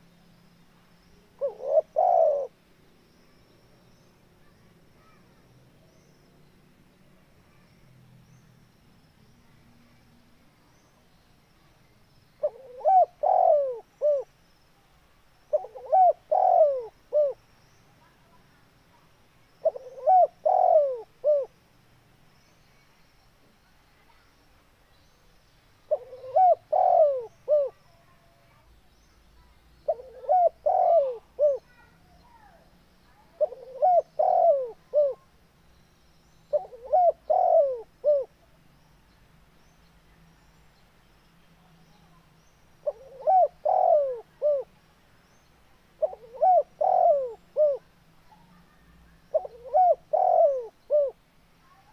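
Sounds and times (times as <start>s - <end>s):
dove cooing: 1.4s - 2.6s, 12.4s - 14.3s, 15.5s - 17.4s, 19.6s - 21.5s, 25.9s - 27.8s, 29.8s - 31.9s, 33.3s - 35.3s, 36.5s - 38.4s, 42.8s - 44.7s, 46.0s - 51.2s.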